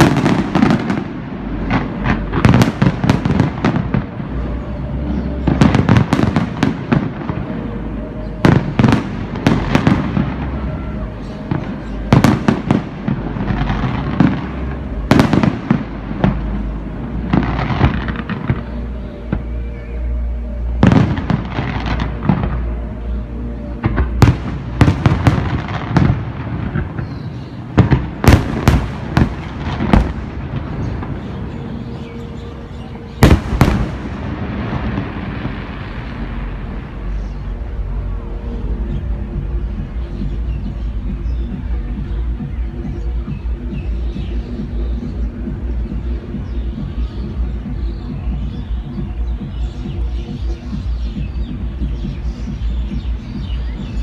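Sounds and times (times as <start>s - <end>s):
fireworks booming: 0.0s - 19.6s, 20.8s - 37.9s
fireworks crackling: 0.0s - 54.0s.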